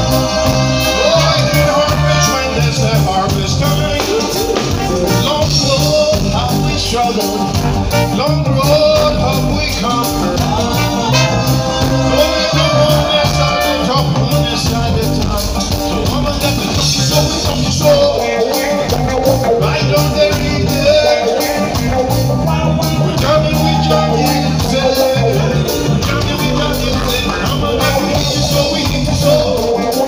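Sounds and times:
backing singers: 0:00.0 - 0:05.7, 0:09.2 - 0:30.0
drum kit: 0:00.0 - 0:30.0
electric bass: 0:00.0 - 0:30.0
electric guitar: 0:00.0 - 0:30.0
keyboard: 0:00.0 - 0:30.0
lead vocal singing: 0:00.0 - 0:30.0.

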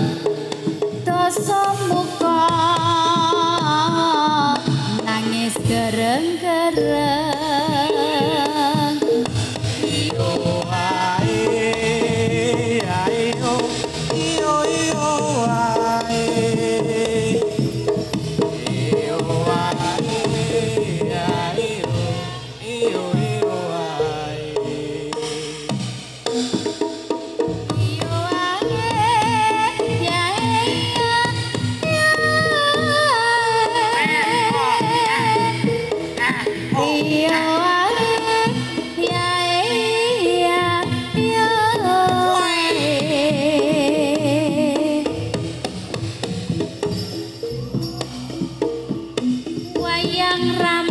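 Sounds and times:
hand drums: 0:00.0 - 0:50.9
gong-chime percussion: 0:45.3 - 0:50.9.

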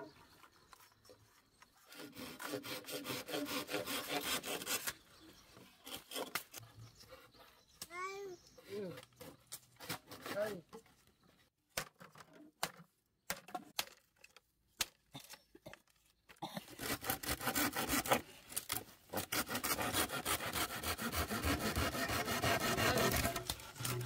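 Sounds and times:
hand saw cutting bamboo: 0:01.8 - 0:05.0, 0:05.8 - 0:07.5, 0:08.6 - 0:10.6, 0:16.6 - 0:24.0.

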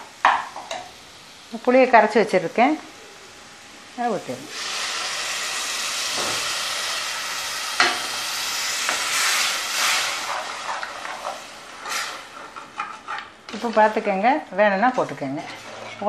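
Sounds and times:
loud sizzling hiss: 0:00.0 - 0:12.4
ladle scraping and knocking pot: 0:14.9 - 0:16.0.

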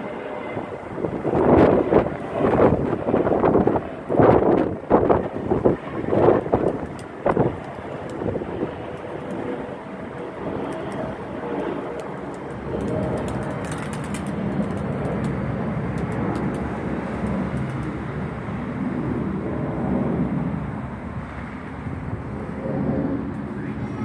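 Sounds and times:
distant city traffic: 0:00.0 - 0:24.0
wind on microphone: 0:00.3 - 0:24.0.

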